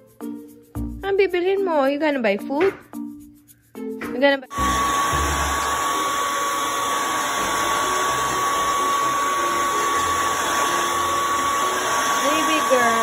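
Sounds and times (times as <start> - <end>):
hair dryer running: 4.5 - 13.0.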